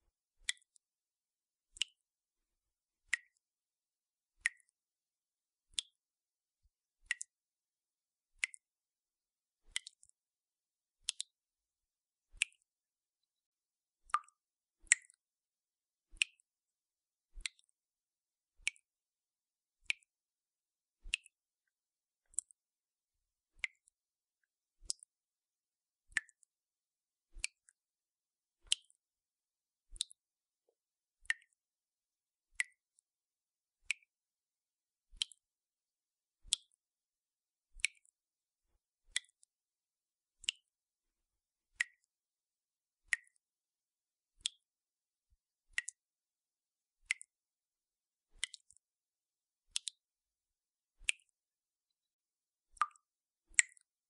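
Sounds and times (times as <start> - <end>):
water drops from dripping tap: 52.8 - 53.9.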